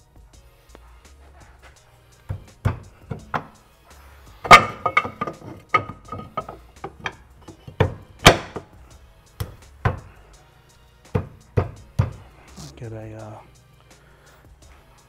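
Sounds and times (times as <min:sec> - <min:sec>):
metal clanks and knocks: 0:01.5 - 0:03.6, 0:04.3 - 0:08.8, 0:09.4 - 0:10.1, 0:11.1 - 0:12.3.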